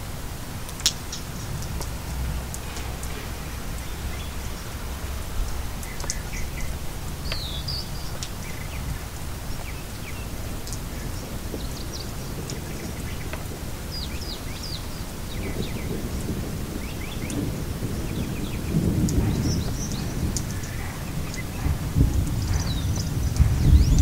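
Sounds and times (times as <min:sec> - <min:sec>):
steady rain: 0:00.0 - 0:24.0
drip ticks: 0:00.7 - 0:03.2, 0:05.8 - 0:06.4, 0:07.2 - 0:08.4, 0:10.6 - 0:10.8, 0:19.0 - 0:24.0.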